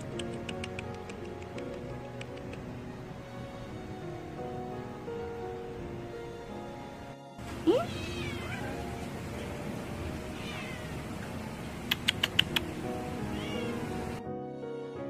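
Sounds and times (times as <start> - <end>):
sharp clicks: 0.0 - 2.7, 11.8 - 12.8
steady background hiss: 1.9 - 14.2
cats meowing: 7.6 - 11.5, 12.5 - 13.9.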